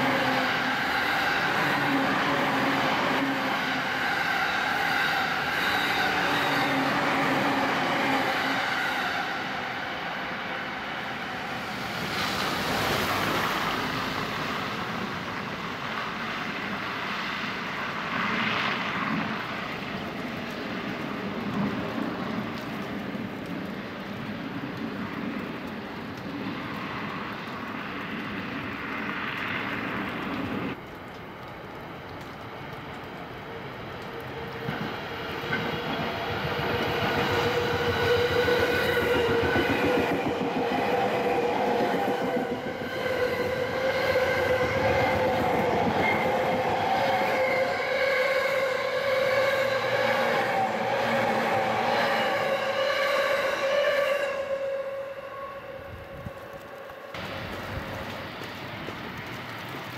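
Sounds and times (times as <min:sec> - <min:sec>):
electric train passing: 0:00.0 - 0:59.9.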